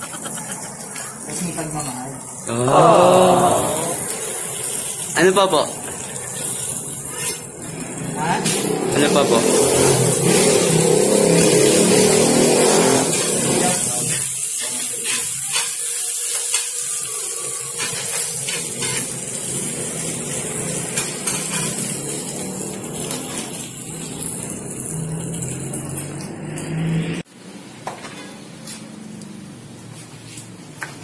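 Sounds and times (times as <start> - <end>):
food sizzling in a pan: 0.0 - 27.3
spoon scraping a pan: 6.1 - 7.8, 13.0 - 15.8, 17.8 - 19.1, 20.9 - 21.9.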